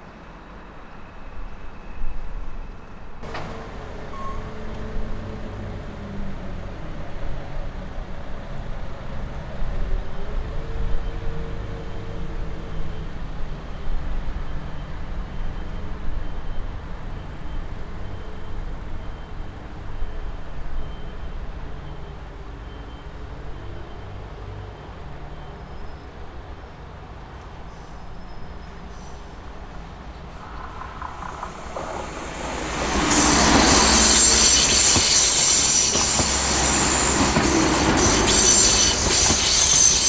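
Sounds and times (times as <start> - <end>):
road traffic rumble: 3.2 - 9.4, 21.7 - 40.0.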